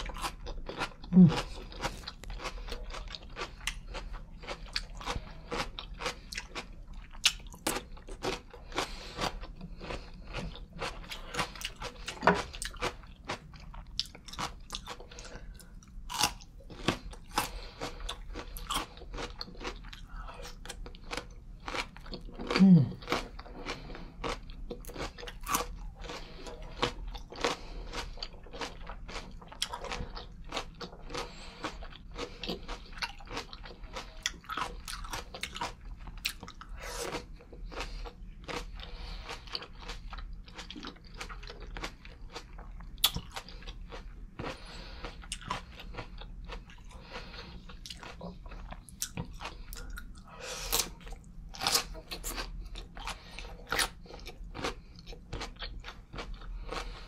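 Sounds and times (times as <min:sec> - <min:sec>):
crunchy chewing: 0:00.0 - 0:57.0.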